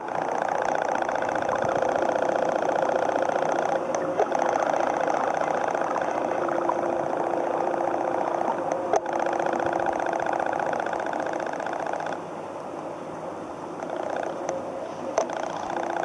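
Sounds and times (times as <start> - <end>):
small motor buzzing hum: 0.0 - 12.3, 13.8 - 16.0
low steady tone: 1.4 - 16.0.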